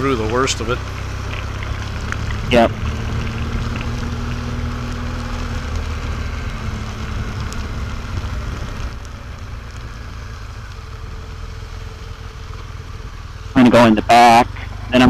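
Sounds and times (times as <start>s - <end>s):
motorcycle engine running: 0.0s - 15.0s
wind noise on microphone: 6.7s - 9.0s.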